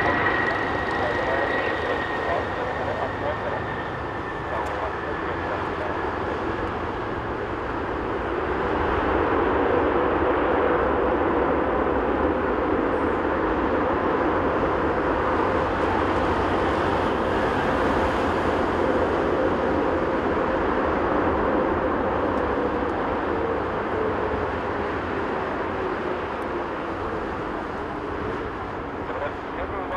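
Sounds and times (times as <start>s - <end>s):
faint steady whine: 0.0s - 8.5s
jet engines running loud: 0.0s - 29.9s.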